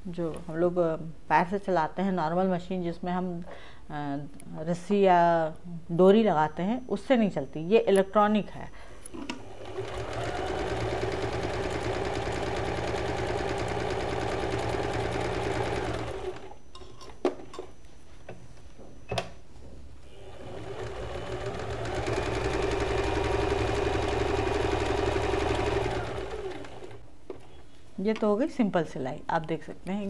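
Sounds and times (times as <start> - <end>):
sewing machine stitching: 9.3 - 16.6, 20.1 - 27.0.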